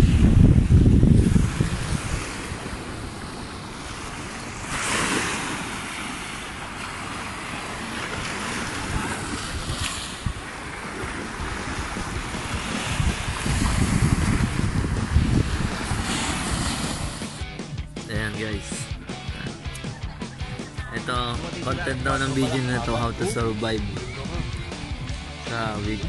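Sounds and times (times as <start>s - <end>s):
small waves washing onto sand: 0.0s - 17.5s
wind rumbling on microphone: 0.0s - 17.6s.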